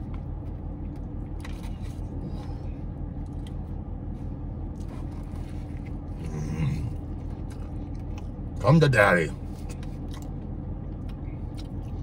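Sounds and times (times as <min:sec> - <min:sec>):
short low vocal sound: 0:06.2 - 0:07.0.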